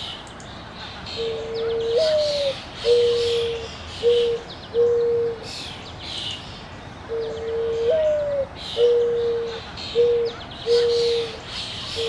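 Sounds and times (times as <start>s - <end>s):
dove cooing: 1.2s - 5.6s, 7.1s - 12.0s.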